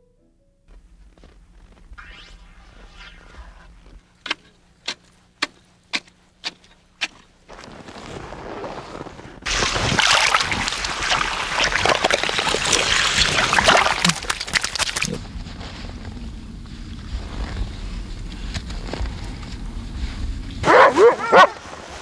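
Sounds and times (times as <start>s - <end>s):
sharp crunches on ice: 3.3s - 15.2s
water splashing and sloshing: 9.4s - 15.9s.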